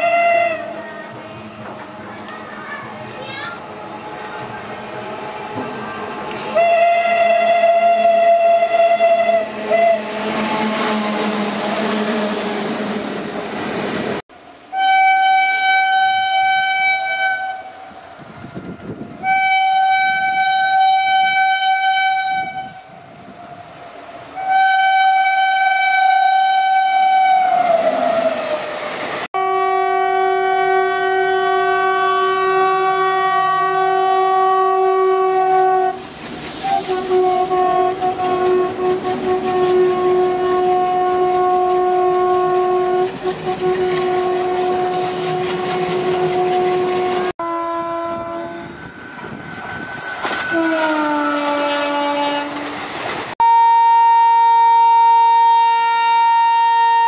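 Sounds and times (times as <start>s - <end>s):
electric locomotive horn blasts: 0.0s - 0.8s, 6.4s - 12.4s, 14.7s - 17.9s, 19.2s - 22.9s, 24.4s - 28.6s, 29.4s - 36.0s, 36.6s - 48.8s, 50.4s - 52.8s, 53.4s - 57.0s
two-tone locomotive horn: 0.0s - 0.8s, 6.3s - 12.7s, 14.7s - 17.9s, 19.2s - 23.0s, 24.4s - 28.7s, 29.4s - 36.0s, 36.6s - 48.8s, 50.3s - 52.8s, 53.4s - 57.0s
diesel locomotive horn: 0.0s - 1.2s, 6.3s - 13.2s, 14.7s - 18.0s, 19.2s - 23.0s, 24.4s - 48.9s, 50.3s - 52.8s, 53.4s - 57.0s
train rumbling: 0.0s - 57.0s.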